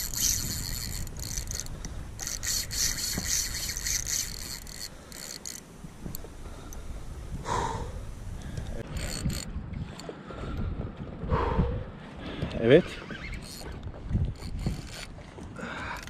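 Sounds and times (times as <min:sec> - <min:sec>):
fishing reel drag buzzing: 0:00.0 - 0:06.8, 0:07.5 - 0:10.0, 0:12.9 - 0:13.8, 0:14.4 - 0:15.1
water and hull noise: 0:00.0 - 0:16.0.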